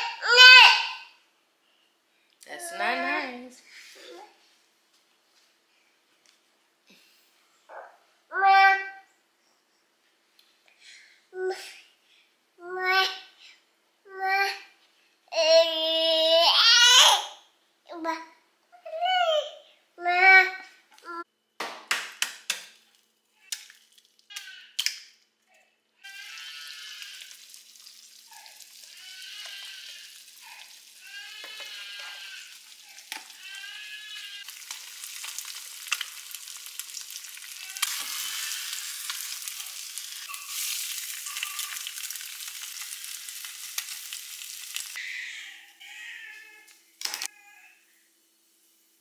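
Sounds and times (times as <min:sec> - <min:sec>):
food sizzling in a pan: 0:26.1 - 0:45.0.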